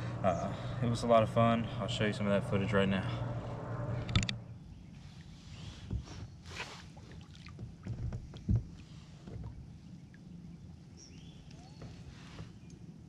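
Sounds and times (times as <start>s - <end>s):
steady low hum: 0.0s - 13.0s
dull thump: 7.5s - 9.6s
gear knocking against kayak: 7.5s - 9.7s.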